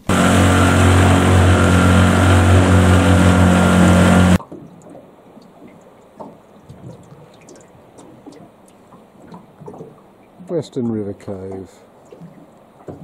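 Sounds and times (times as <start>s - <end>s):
outboard motor running: 0.0s - 4.4s
water lapping: 0.0s - 13.0s.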